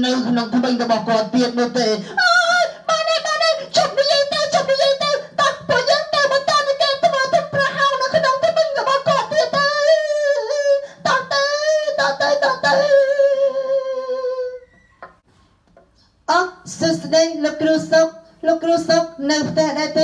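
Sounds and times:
high voice singing: 1.5 - 14.8.

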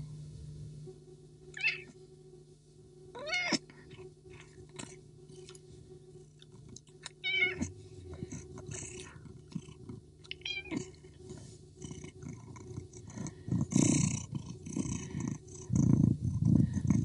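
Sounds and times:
cat yowling: 1.6 - 1.9, 3.2 - 3.6, 7.2 - 7.7, 10.4 - 10.9.

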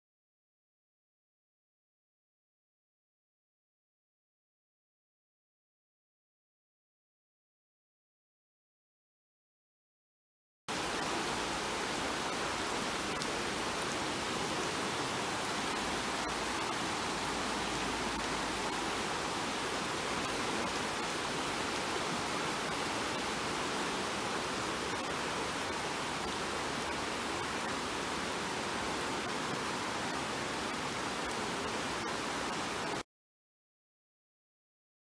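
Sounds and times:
floodwater rushing: 10.7 - 33.0
heavy rain on water: 10.7 - 33.0.

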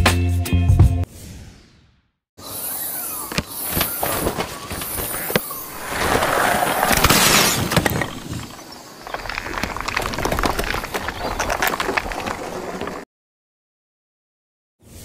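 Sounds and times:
crackling glass crash: 5.8 - 8.6
glass cracking and shattering: 6.7 - 12.5.

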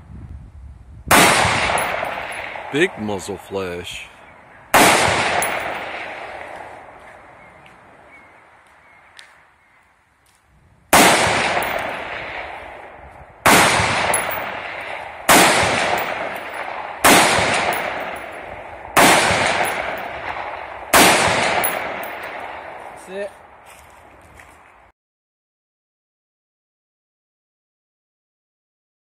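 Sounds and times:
rifle shots echoing: 1.1 - 3.0, 4.7 - 7.0, 11.0 - 22.9.

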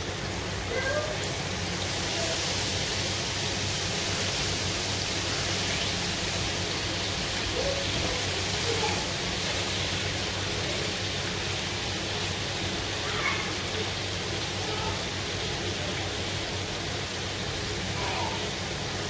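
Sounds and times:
chicken sizzling in oil: 0.0 - 19.0.

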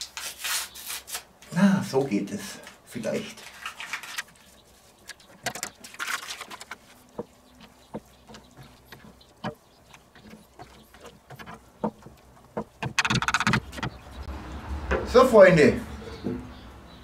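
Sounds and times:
spoon stirring thick sauce: 6.8 - 13.0.

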